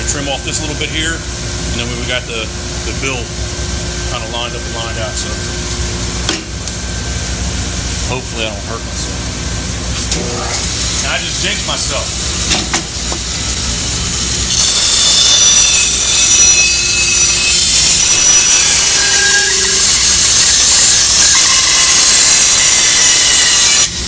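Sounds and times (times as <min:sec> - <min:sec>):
bandsaw motor hum: 0:08.9 - 0:24.0
bandsaw cutting wood: 0:14.5 - 0:23.9.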